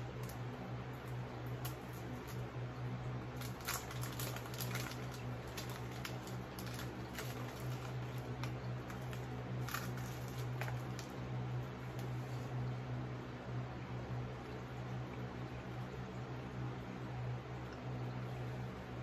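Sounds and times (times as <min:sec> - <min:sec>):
steady low hum: 0:00.0 - 0:19.0
snack wrapper crackling: 0:03.3 - 0:11.2.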